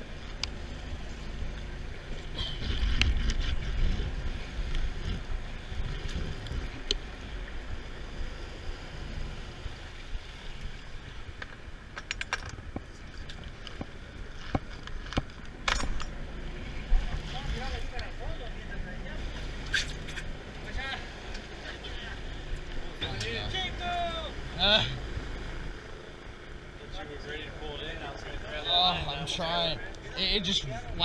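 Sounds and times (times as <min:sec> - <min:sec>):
wind rumbling on microphone: 0:00.0 - 0:18.2
boat running noise: 0:00.0 - 0:31.0.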